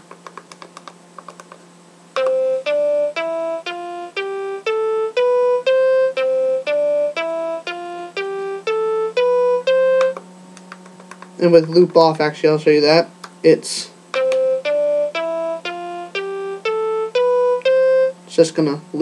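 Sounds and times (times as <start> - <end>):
looping short electronic notes: 2.2 - 10.2, 14.1 - 18.2.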